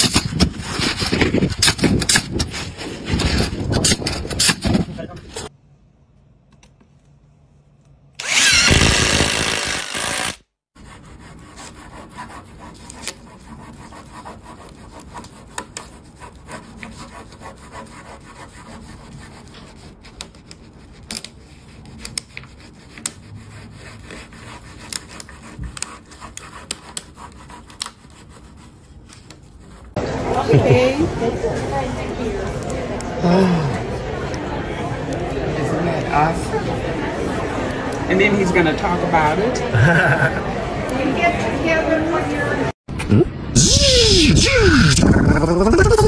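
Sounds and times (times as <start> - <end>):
cordless drills whirring: 8.2 - 10.4.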